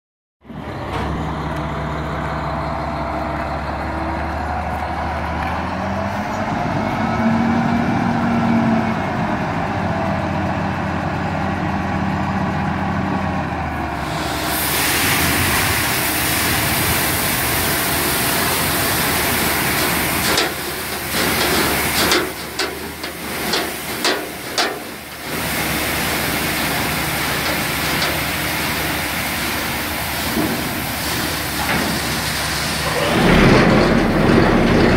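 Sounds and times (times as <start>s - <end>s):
diesel truck engine: 0.4s - 34.9s
grain pouring onto steel grate: 14.0s - 34.2s.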